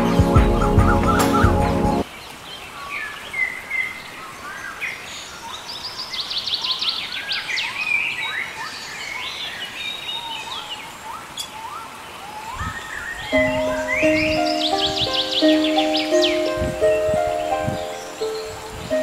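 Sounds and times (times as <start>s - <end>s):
small birds chirping: 0.7s - 19.0s
bird trill: 12.5s - 19.0s.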